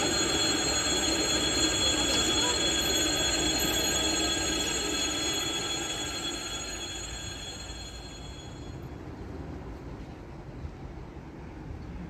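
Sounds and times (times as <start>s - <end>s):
high-pitched whine tones: 0.0s - 9.0s
electric train rumble: 0.0s - 12.0s.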